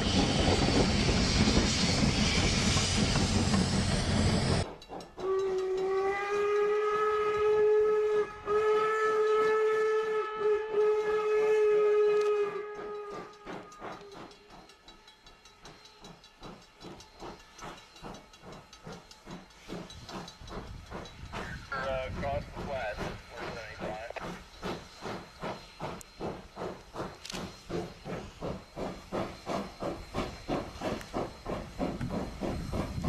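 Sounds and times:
snowplow train rushing rumble: 0.0 - 4.7, 17.1 - 33.0
steam hissing: 0.0 - 33.0
steam locomotive chuffing: 0.0 - 33.0.

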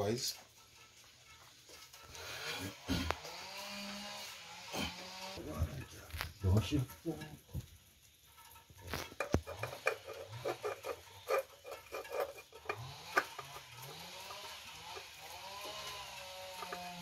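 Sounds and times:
clicks and knocks of handling tools: 8.4 - 15.2, 16.5 - 17.0.

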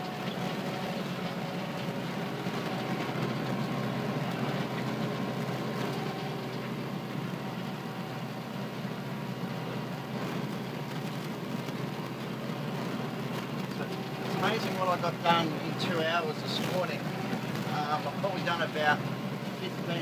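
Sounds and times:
tractor diesel engine running: 0.0 - 20.0
slasher mowing grass: 9.8 - 20.0.

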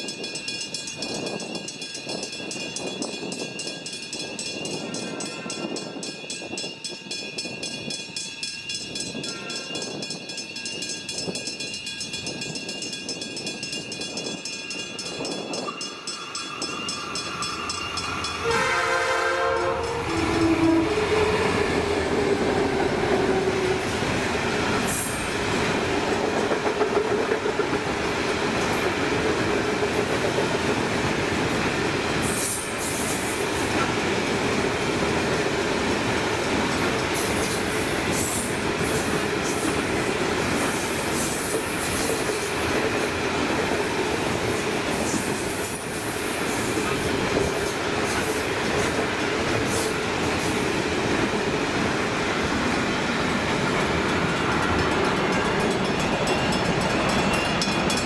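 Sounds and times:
locomotive horn: 18.4 - 22.3.

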